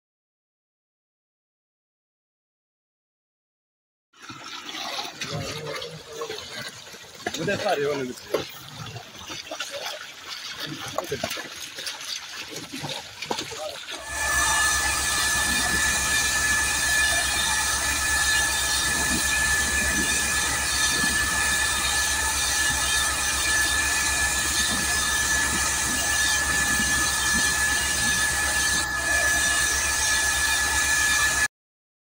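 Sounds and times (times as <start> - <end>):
low machine drone: 13.9 - 31.5
high whine: 14.0 - 31.5.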